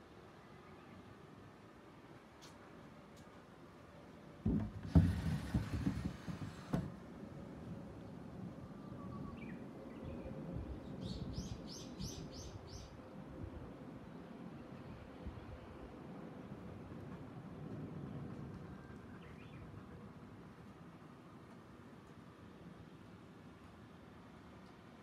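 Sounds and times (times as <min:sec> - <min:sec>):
door knock stopping: 0:04.5 - 0:06.9
sliding door rumbling on track: 0:04.5 - 0:07.2.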